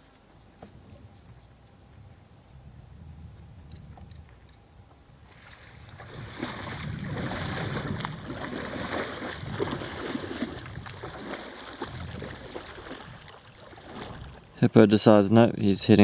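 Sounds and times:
hippo splashing in water: 0:05.2 - 0:14.6.

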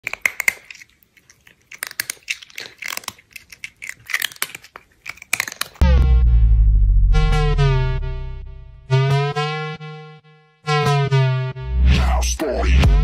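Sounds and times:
cat chewing noisily: 0:00.0 - 0:05.8
electronic music with deep bass: 0:05.8 - 0:13.0.

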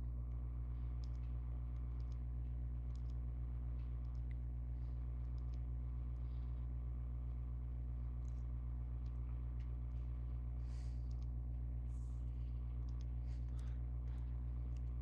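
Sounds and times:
low electrical hum: 0:00.0 - 0:15.0
faint mouse clicks: 0:00.8 - 0:04.5, 0:05.1 - 0:06.5, 0:08.2 - 0:11.4, 0:12.4 - 0:15.0
soft breaths: 0:04.6 - 0:07.6, 0:09.2 - 0:15.0.

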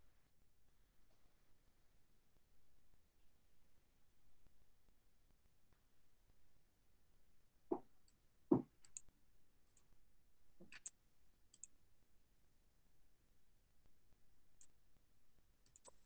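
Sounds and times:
faint mouse and key clicks: 0:08.8 - 0:09.1, 0:10.6 - 0:11.8, 0:15.6 - 0:16.0.

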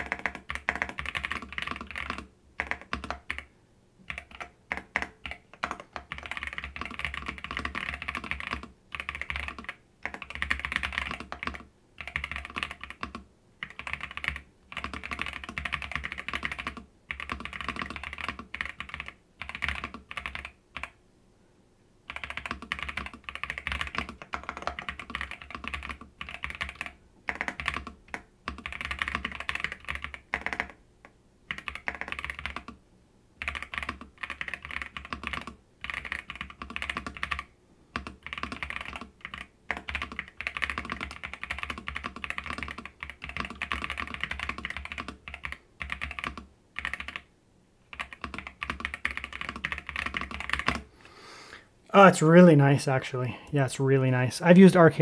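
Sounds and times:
mechanical keyboard typing: 0:00.0 - 0:03.5, 0:04.1 - 0:21.0, 0:22.1 - 0:30.8, 0:31.5 - 0:32.8, 0:33.4 - 0:47.3, 0:47.9 - 0:50.9.

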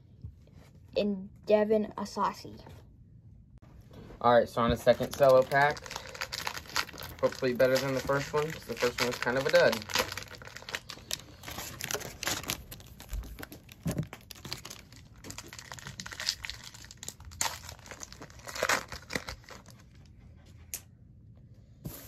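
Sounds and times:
plastic wrapper crinkling: 0:04.8 - 0:20.0.

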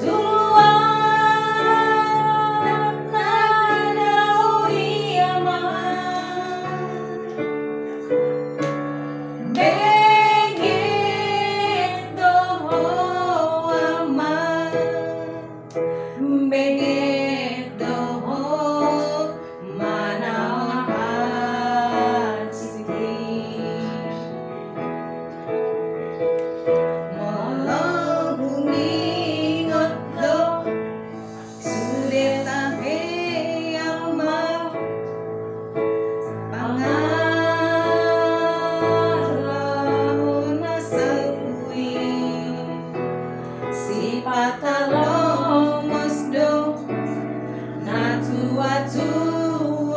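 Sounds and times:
woman singing: 0:00.0 - 0:07.5, 0:09.4 - 0:24.4, 0:27.1 - 0:30.7, 0:31.5 - 0:34.9, 0:36.5 - 0:43.0, 0:43.7 - 0:49.9
piano sustained chords: 0:00.0 - 0:49.9.

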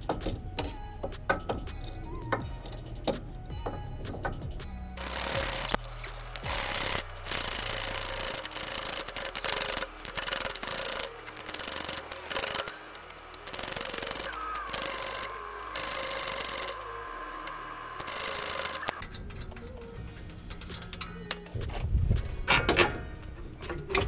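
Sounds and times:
power tool running: 0:05.0 - 0:19.0.

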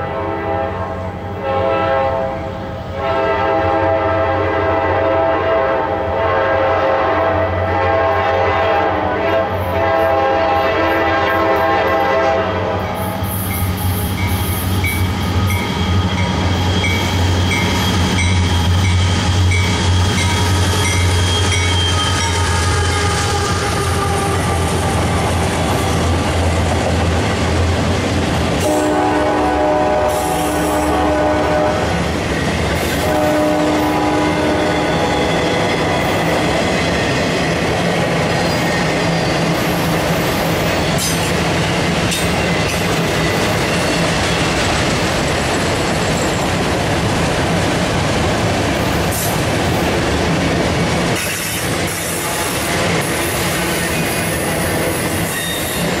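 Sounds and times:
locomotive horn: 0:00.0 - 0:13.1, 0:20.1 - 0:26.0, 0:28.6 - 0:32.0, 0:32.8 - 0:36.4, 0:52.1 - 0:55.9
train wheels on rails: 0:00.0 - 0:56.0.

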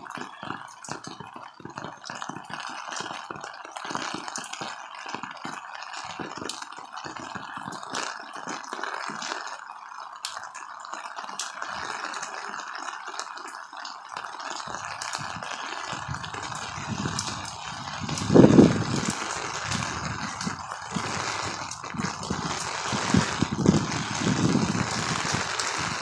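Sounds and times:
raindrops ticking: 0:00.0 - 0:26.0
torrential rain hiss: 0:00.0 - 0:26.0
wind gusts on microphone: 0:14.9 - 0:26.0.

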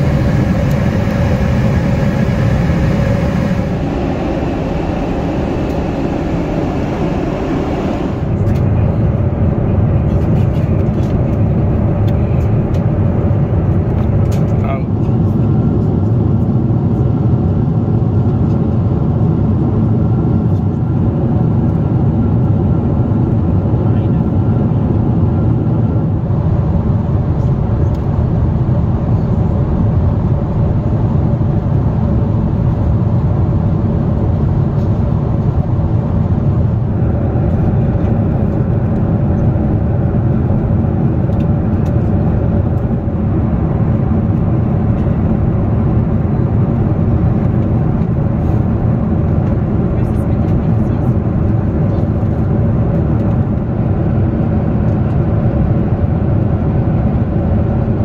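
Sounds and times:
air rushing past fuselage: 0:00.0 - 0:08.8
jet engines in cabin: 0:00.0 - 0:58.0.

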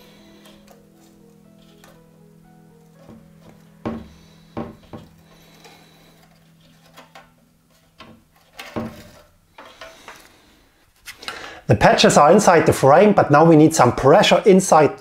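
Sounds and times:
quiet background music: 0:00.0 - 0:15.0
hands tapping and rubbing: 0:02.9 - 0:05.7.

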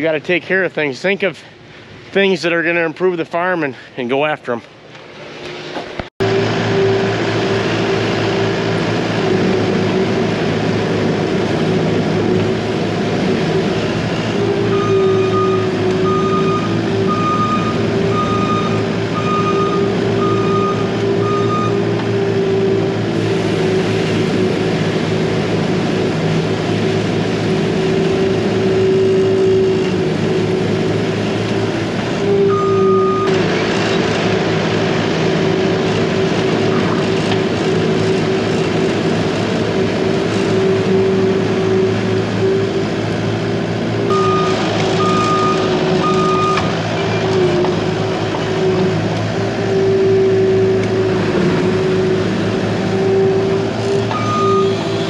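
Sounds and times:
skid steer loader running: 0:04.9 - 0:55.0
reversing alarm beeps: 0:14.3 - 0:22.0, 0:32.3 - 0:33.4, 0:44.1 - 0:46.7, 0:54.0 - 0:55.0.

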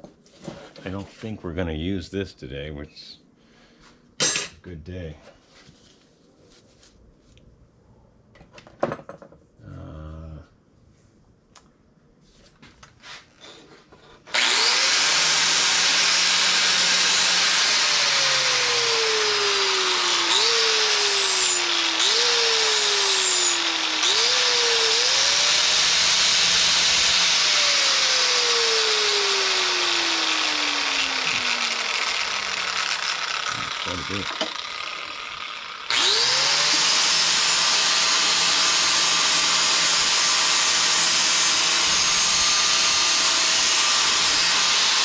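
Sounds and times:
angle grinder grinding steel: 0:14.2 - 0:45.0.

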